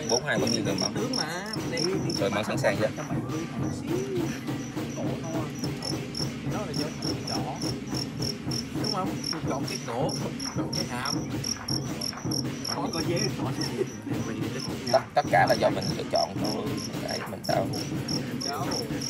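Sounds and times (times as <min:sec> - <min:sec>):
crickets chirping: 0:00.0 - 0:19.0
low background murmur: 0:00.0 - 0:19.0.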